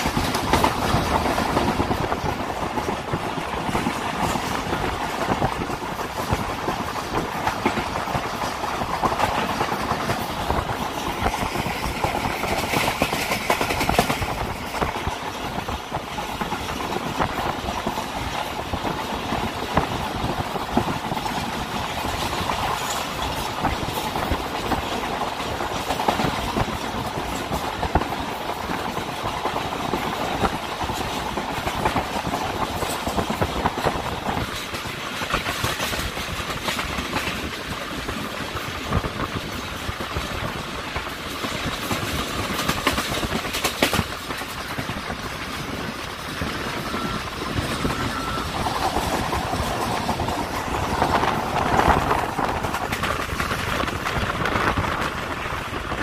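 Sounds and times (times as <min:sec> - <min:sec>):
train wheels rumbling on track: 0:00.0 - 0:56.0
wheels clacking over rail joints: 0:00.0 - 0:56.0.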